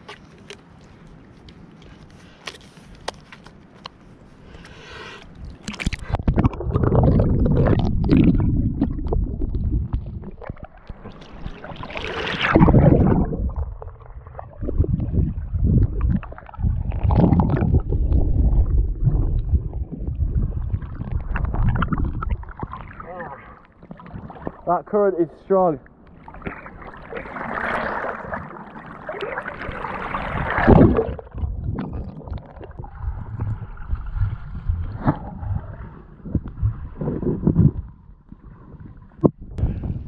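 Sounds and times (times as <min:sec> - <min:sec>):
water splashing: 0:05.5 - 0:24.8, 0:26.1 - 0:37.2
underwater river current rushing: 0:06.1 - 0:24.6, 0:26.1 - 0:37.5.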